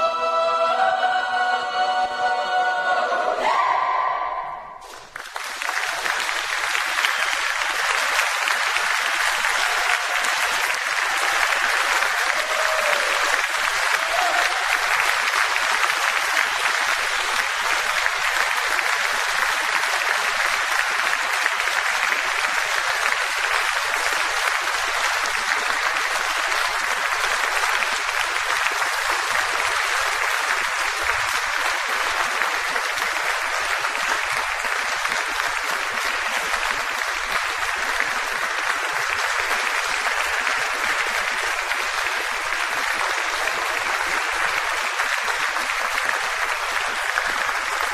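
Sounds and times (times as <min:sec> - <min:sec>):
audience applauding: 0:04.7 - 0:47.9.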